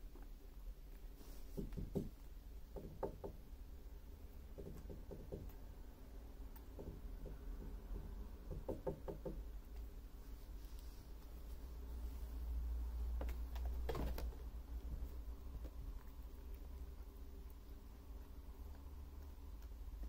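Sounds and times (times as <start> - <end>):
low steady hum: 0.0 - 20.0
soft knocking taps: 1.5 - 3.4, 6.6 - 9.4.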